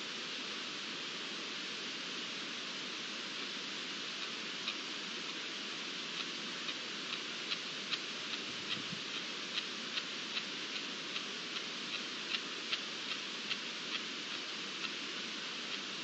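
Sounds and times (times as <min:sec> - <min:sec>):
steady hiss: 0:00.0 - 0:16.0
high-pitched ticking: 0:06.2 - 0:16.0.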